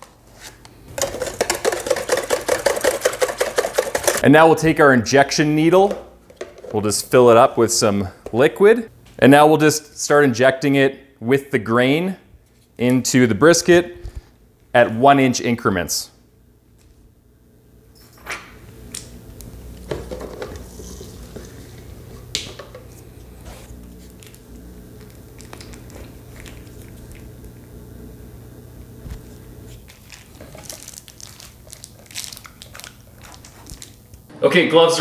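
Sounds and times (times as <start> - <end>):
plastic wrap crinkling: 20.6 - 27.4, 29.0 - 34.3
small clicks and squishes: 25.0 - 27.3, 29.9 - 34.3.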